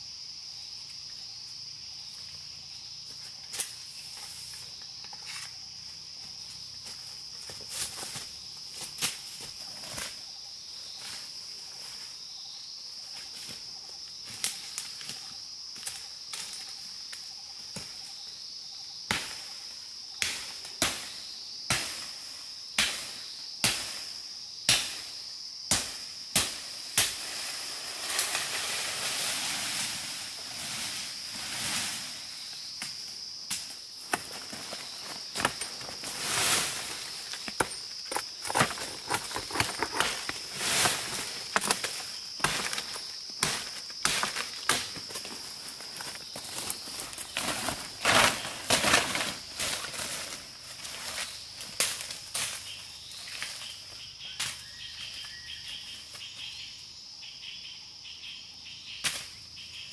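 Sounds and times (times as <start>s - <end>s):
rustling through undergrowth: 27.0s - 56.6s.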